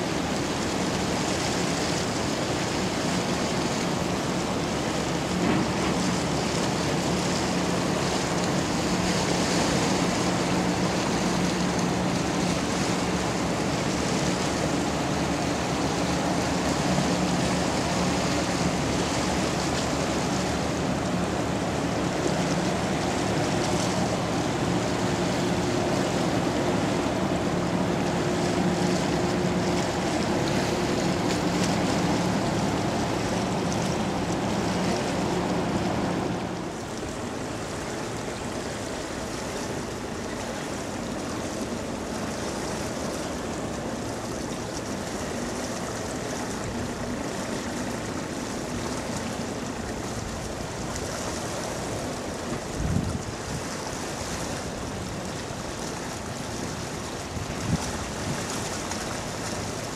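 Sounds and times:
ship diesel engine drone: 0.0s - 59.9s
water rushing along hull: 0.0s - 59.9s
wind noise on microphone: 52.5s - 53.8s, 57.3s - 58.7s.

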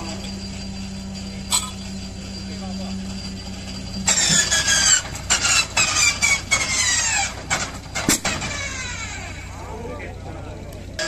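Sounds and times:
starter whine: 0.0s - 11.0s
engine cracks: 4.0s - 9.8s.

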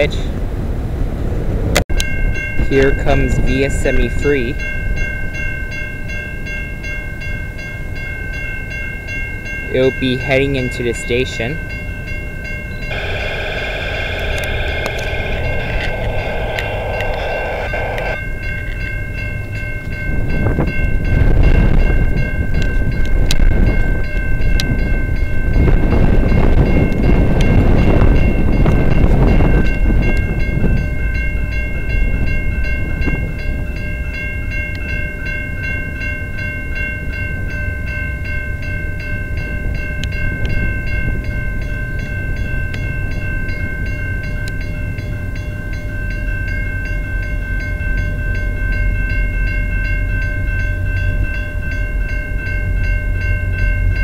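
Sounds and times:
level crossing warning bell: 1.9s - 54.0s
train rushing: 12.8s - 18.8s.

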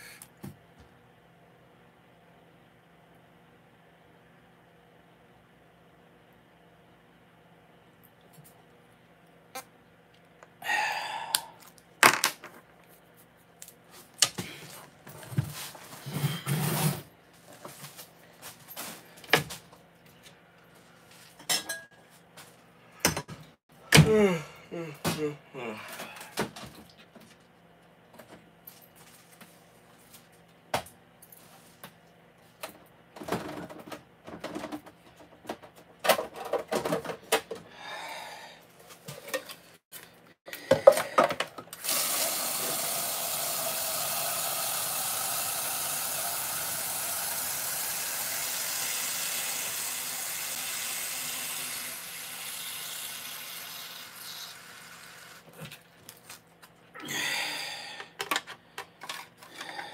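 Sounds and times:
kitchen tap running water: 41.8s - 55.5s.

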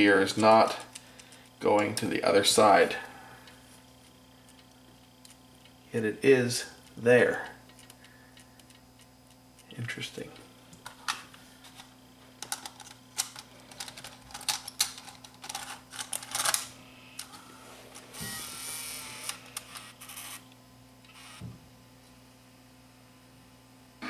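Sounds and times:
loading mechanism motor whirring: 10.9s - 21.5s.

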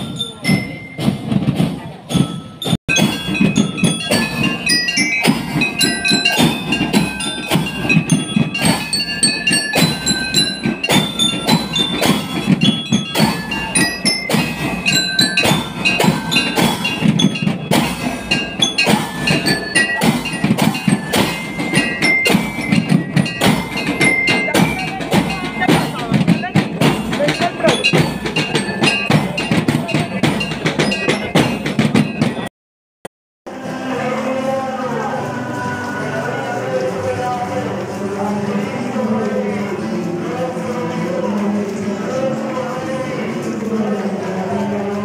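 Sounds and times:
high bell-like melody: 0.0s - 1.4s, 2.1s - 32.5s
marching band drums: 0.0s - 32.5s.

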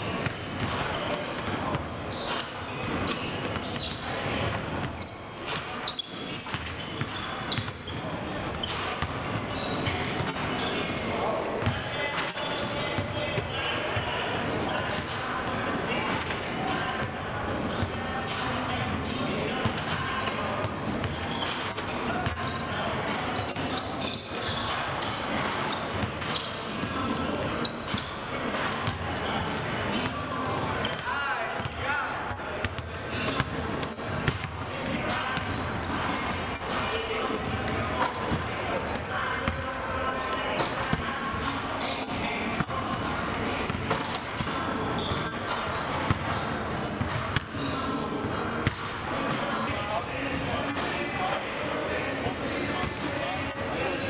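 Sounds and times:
din of large hall: 0.0s - 54.0s.

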